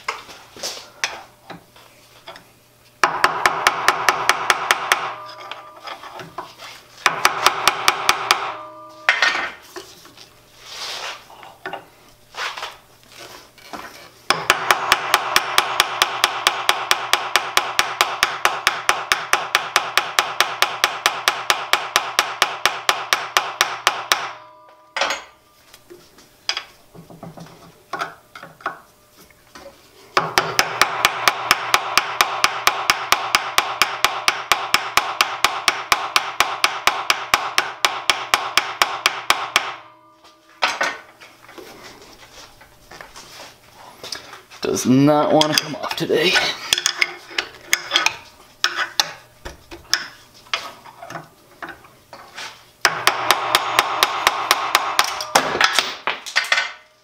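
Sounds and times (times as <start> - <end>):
rapid metal tapping with ringing: 3.0 - 6.1, 7.0 - 9.5, 14.3 - 25.4, 30.2 - 40.6, 52.8 - 57.0
knocks and scrapes: 5.3 - 7.0, 45.4 - 52.7.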